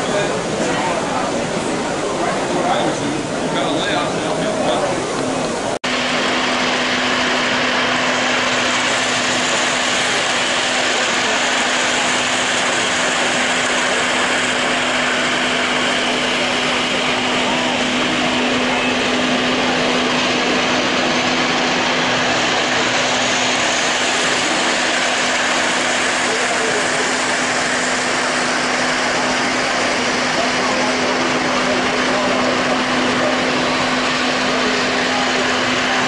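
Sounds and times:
model train wheels rumbling: 0.0 - 36.0
steady low hum: 0.0 - 36.0
train motors whirring: 0.0 - 36.0.

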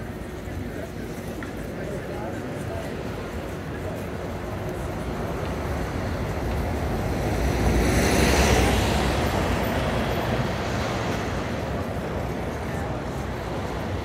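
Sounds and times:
bus engine rumble: 0.0 - 14.0.

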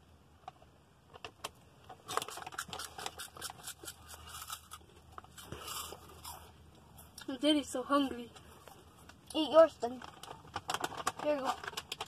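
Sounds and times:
snack bag crinkling: 1.9 - 6.5, 9.9 - 12.0.

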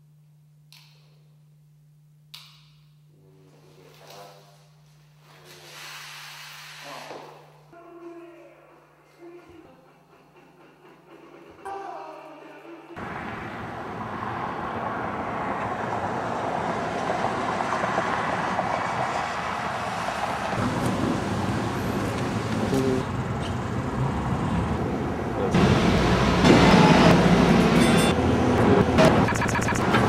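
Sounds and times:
heavy low engine rumble: 8.2 - 30.0
road traffic noise: 13.0 - 30.0.

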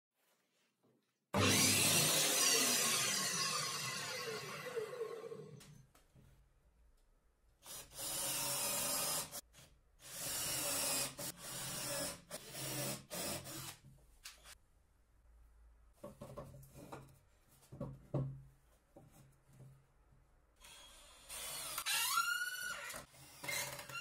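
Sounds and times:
circular saw spinning down: 1.4 - 5.6
cordless drill driving screws: 1.4 - 5.6, 10.0 - 13.8, 20.6 - 24.0.

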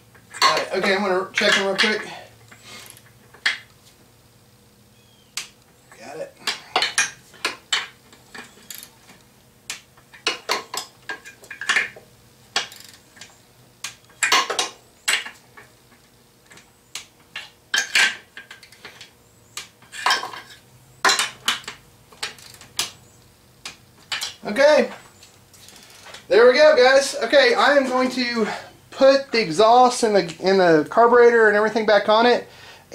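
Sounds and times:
torque wrench clicking: 12.6 - 14.5.

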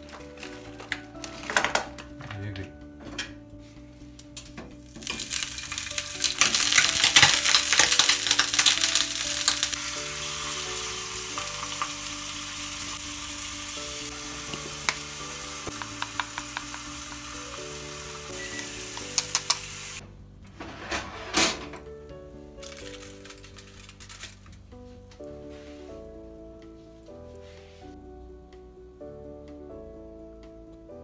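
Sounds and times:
pork sizzling in a frying pan: 4.8 - 20.0.

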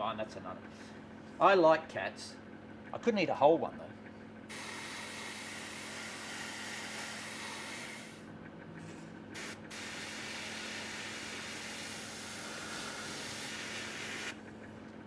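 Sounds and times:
airbrush spraying hiss: 9.4 - 14.3.

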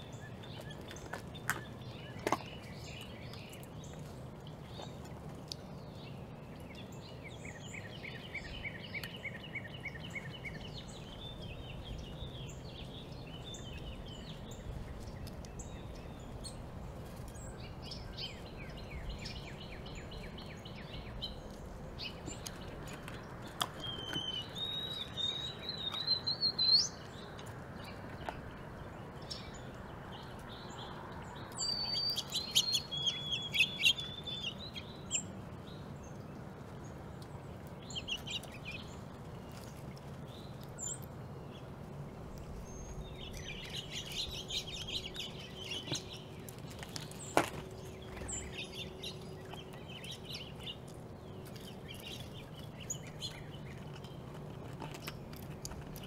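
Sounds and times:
songbirds chirping and trilling: 0.0 - 56.0.

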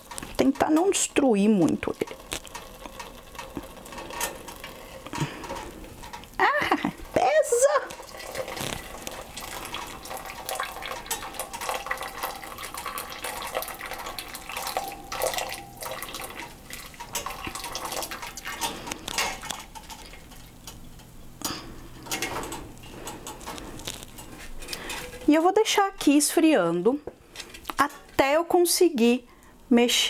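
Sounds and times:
liquid dripping into metal pot: 7.9 - 21.6.

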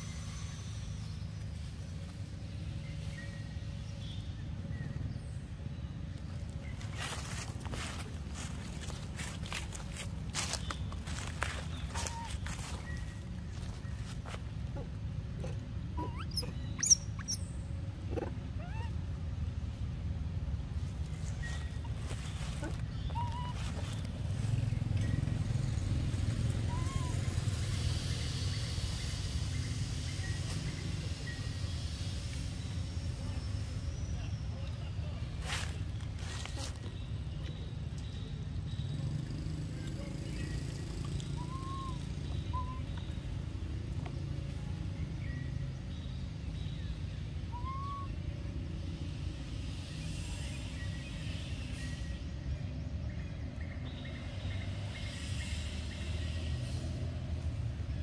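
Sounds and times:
vehicle engine rumble: 0.0 - 58.0
monkey coo calls: 12.0 - 12.4, 14.7 - 17.4, 18.1 - 19.0, 22.6 - 23.8, 26.5 - 27.4, 41.3 - 43.0, 47.5 - 48.2.

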